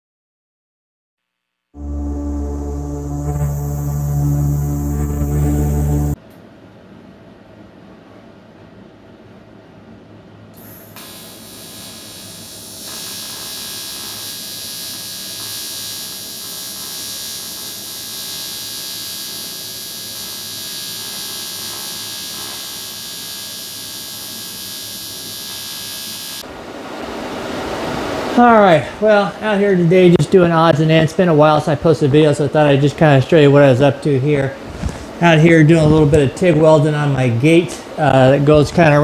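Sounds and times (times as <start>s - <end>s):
welding arc hissing: 10.6s - 26.4s.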